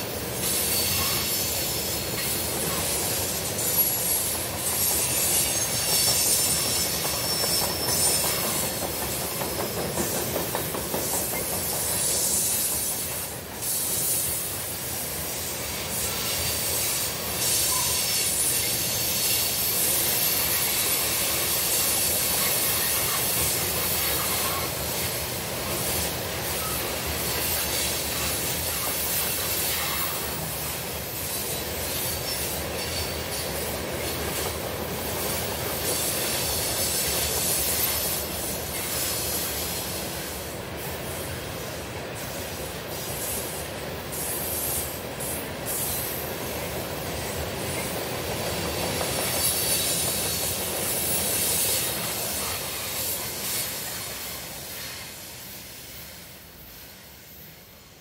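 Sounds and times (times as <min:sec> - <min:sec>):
steel wheels rolling on track: 0:00.0 - 0:13.8.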